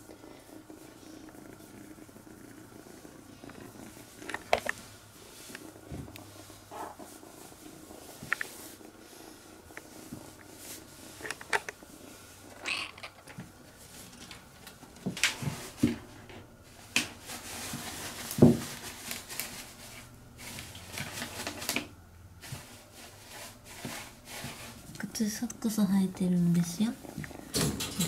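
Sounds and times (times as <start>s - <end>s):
kitten purring: 0.0s - 21.8s, 22.6s - 28.0s
small clicks and knocks: 4.2s - 4.8s.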